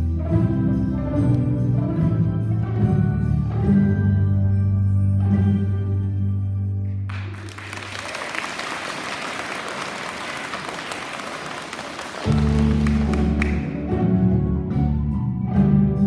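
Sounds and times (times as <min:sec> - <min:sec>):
string orchestra sustained chords: 0:00.0 - 0:06.3
audience clapping: 0:07.1 - 0:13.9.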